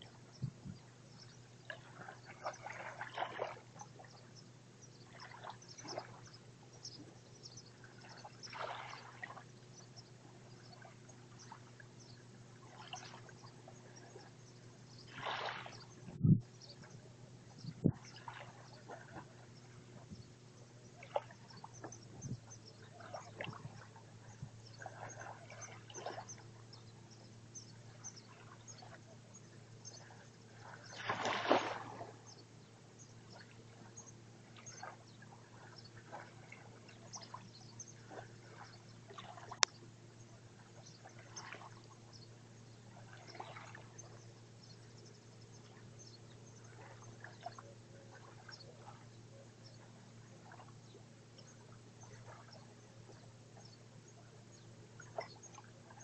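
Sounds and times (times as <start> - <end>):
steady low hum: 0.0 - 56.0
wavelets lapping on sandy shore: 1.5 - 4.2, 7.7 - 17.0, 21.0 - 27.0, 27.8 - 32.4, 33.3 - 42.2, 42.9 - 44.2, 49.8 - 50.7.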